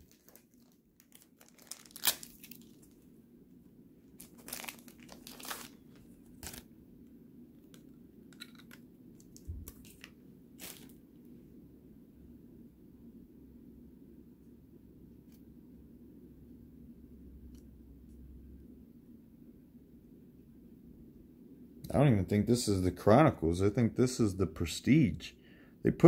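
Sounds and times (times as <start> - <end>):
trading cards rustling: 0.0 - 3.0, 4.2 - 6.7, 7.6 - 11.0.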